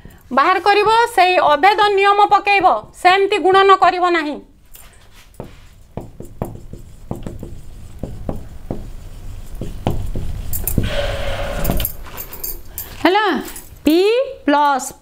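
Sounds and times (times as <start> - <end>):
marker pen writing on whiteboard: 5.0 - 11.8.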